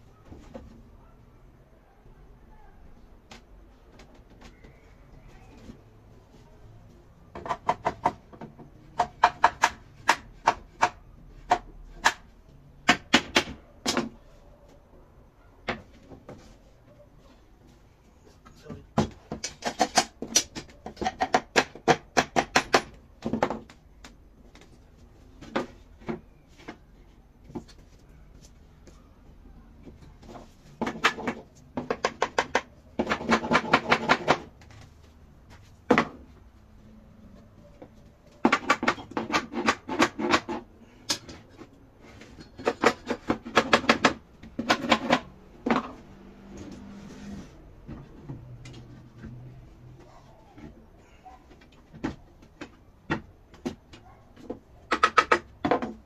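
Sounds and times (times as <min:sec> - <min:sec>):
hammer tapping wood joints: 0:07.3 - 0:14.2, 0:18.9 - 0:24.6, 0:30.2 - 0:34.7, 0:37.9 - 0:41.4, 0:42.2 - 0:46.0, 0:51.6 - 0:56.0.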